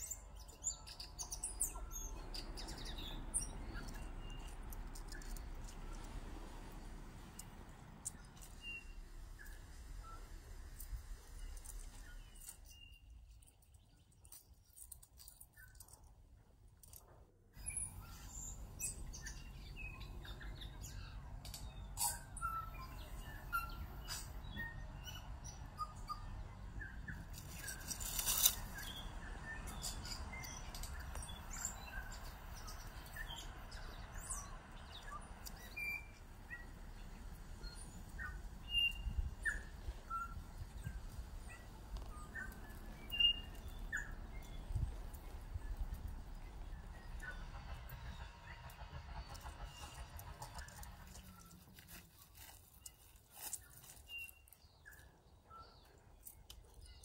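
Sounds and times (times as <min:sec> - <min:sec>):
low background rumble: 0:00.0 - 0:13.6, 0:17.4 - 0:52.0
small birds chirping: 0:00.0 - 0:57.0.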